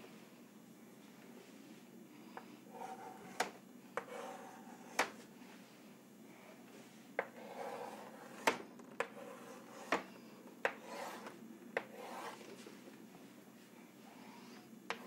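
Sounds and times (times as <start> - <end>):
chalk scraping on chalkboard: 2.7 - 3.4, 4.0 - 5.0, 7.4 - 8.5, 9.1 - 10.1, 10.8 - 12.6.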